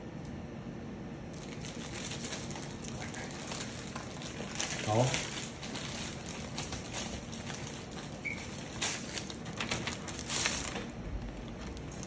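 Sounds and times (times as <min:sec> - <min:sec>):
plastic packaging crinkling: 0:01.3 - 0:12.0.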